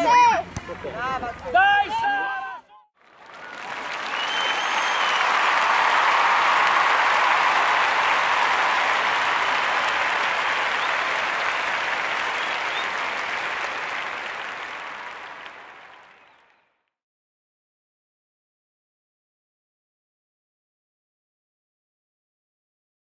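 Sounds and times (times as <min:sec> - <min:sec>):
crowd applauding: 0:03.0 - 0:16.6.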